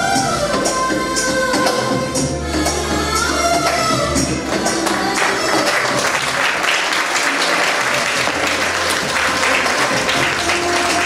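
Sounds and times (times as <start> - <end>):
music playing: 0.0 - 11.0
audience applauding: 4.6 - 11.0.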